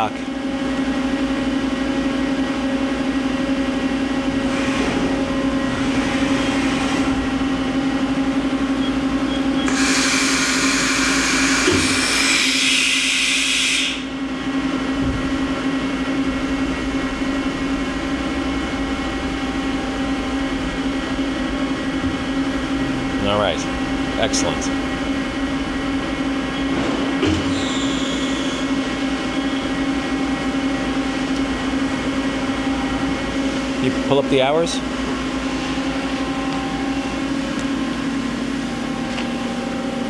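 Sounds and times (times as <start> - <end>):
machine hum: 0.0 - 40.0
hiss with high whine: 9.7 - 14.1.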